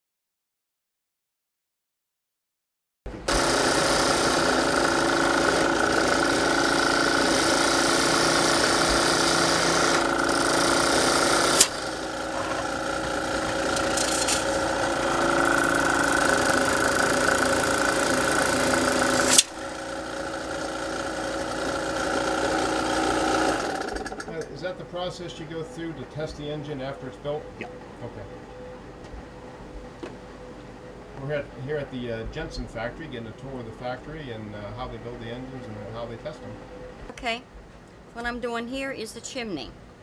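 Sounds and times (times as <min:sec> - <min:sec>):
model steam engines running: 0:03.3 - 0:24.4.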